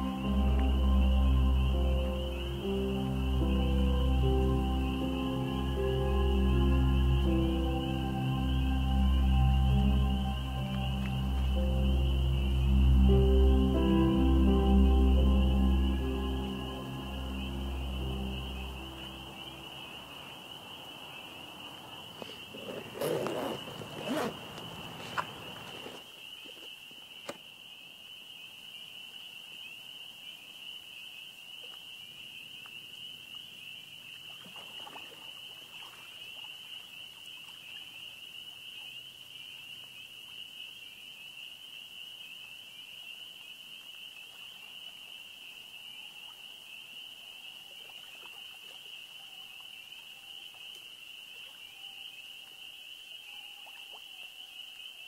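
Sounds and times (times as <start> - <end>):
high-pitched insect chorus: 0.0 - 55.0
rustling: 22.1 - 26.1.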